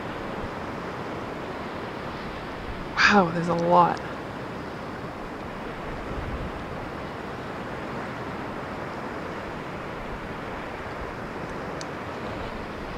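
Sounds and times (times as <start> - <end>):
sea water around kayak: 0.0 - 12.9
wind on microphone: 5.1 - 7.1.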